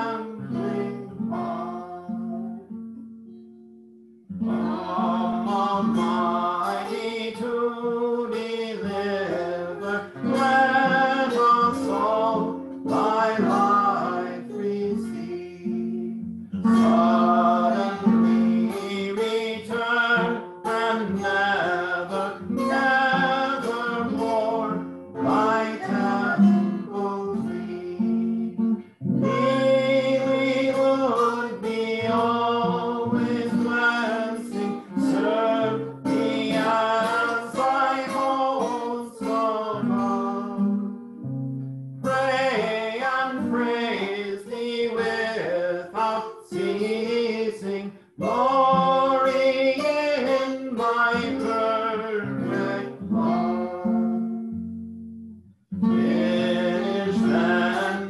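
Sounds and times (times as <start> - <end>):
person singing: 0.0 - 3.7, 4.4 - 40.9, 42.0 - 54.5, 55.8 - 58.0
strummed acoustic guitar: 0.0 - 58.0.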